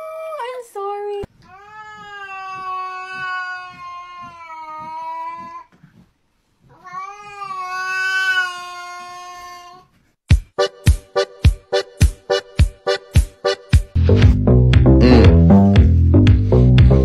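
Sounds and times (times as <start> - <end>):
cat yowling: 1.5 - 5.7, 6.7 - 9.9.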